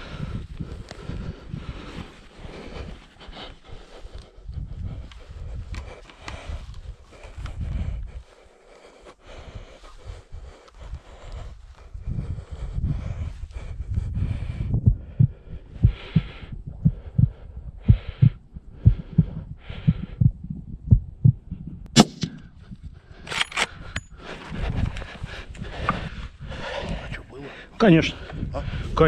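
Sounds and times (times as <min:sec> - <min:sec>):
heavy breathing: 0:00.0 - 0:29.0
soft low thumps: 0:11.9 - 0:23.1
rifle shot: 0:21.9 - 0:22.4.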